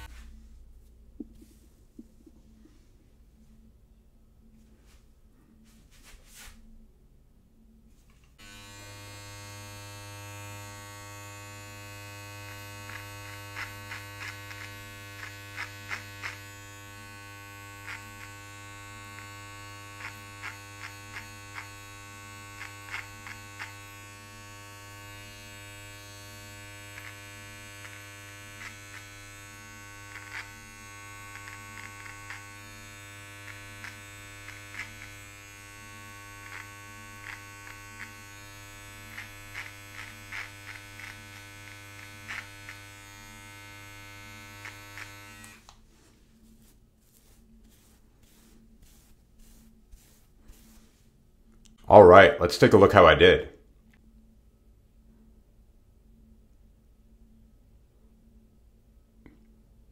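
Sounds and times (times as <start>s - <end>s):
electric trimmer buzzing: 8.4s - 45.8s
trimmer blade cutting hair: 8.4s - 45.8s.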